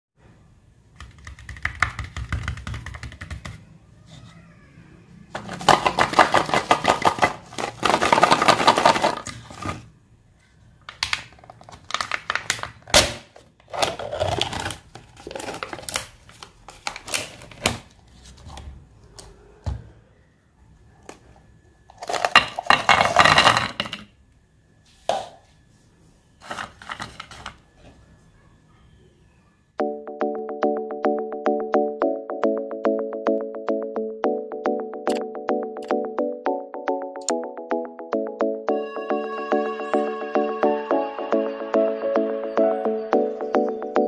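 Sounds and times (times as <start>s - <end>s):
foil lid crinkling and tearing: 5.4s - 9.8s, 11.4s - 17.9s.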